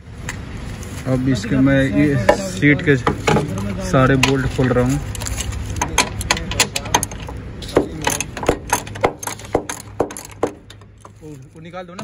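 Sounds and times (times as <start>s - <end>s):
ratchet wrench clicking: 7.9s - 11.2s.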